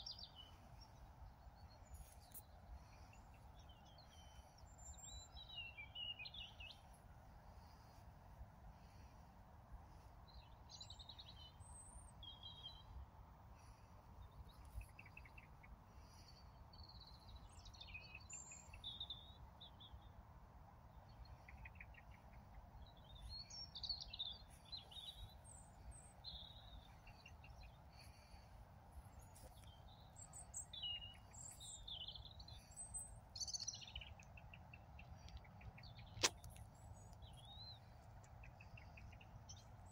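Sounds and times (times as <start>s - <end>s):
faint birds chirping: 0.0s - 39.9s
sharp click: 36.2s - 36.6s.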